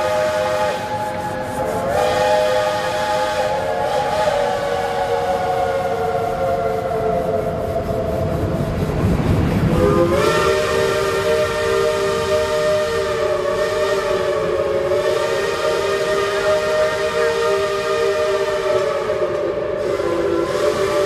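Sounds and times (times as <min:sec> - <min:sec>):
steam locomotive chime whistle: 0:00.0 - 0:08.6, 0:09.7 - 0:21.0
rumble: 0:06.4 - 0:10.7.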